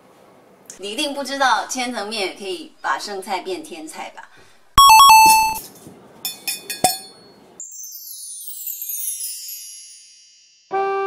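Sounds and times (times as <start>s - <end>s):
bright chime: 4.8s - 5.6s.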